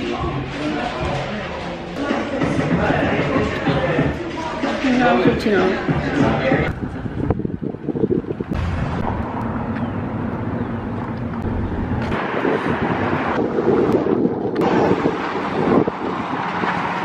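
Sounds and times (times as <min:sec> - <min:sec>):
street traffic: 0:00.0 - 0:17.0
heavy low rumble: 0:05.9 - 0:17.0
wind buffeting microphone: 0:06.0 - 0:17.0.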